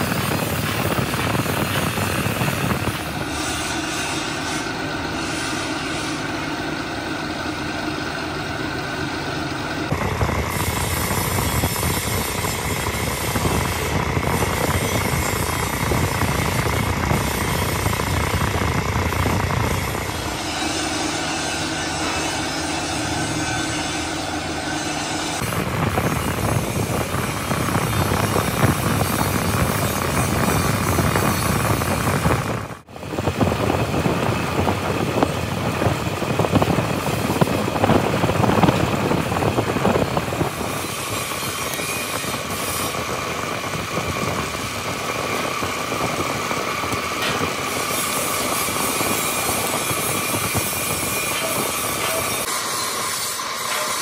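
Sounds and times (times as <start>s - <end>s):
motor whine: 0.0s - 54.0s
electric drill boring into metal: 35.1s - 54.0s.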